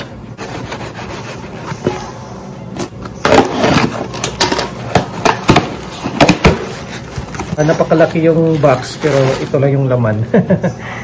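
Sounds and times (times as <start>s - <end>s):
tape ripping and cardboard scraping: 2.8s - 4.7s, 5.6s - 9.6s.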